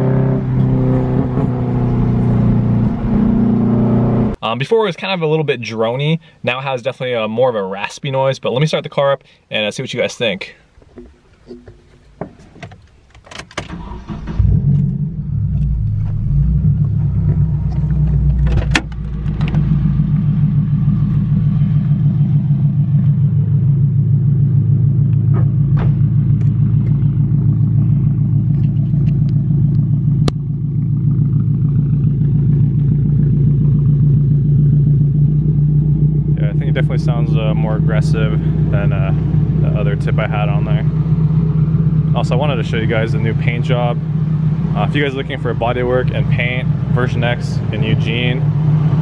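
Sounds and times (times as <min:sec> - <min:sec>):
car engine starting and idling: 0:00.0 - 0:04.4, 0:12.8 - 0:49.0.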